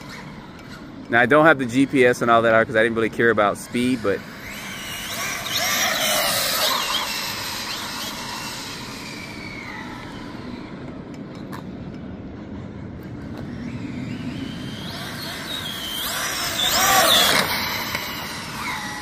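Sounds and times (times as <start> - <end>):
electric motor whining: 3.8 - 11.0, 13.3 - 19.0.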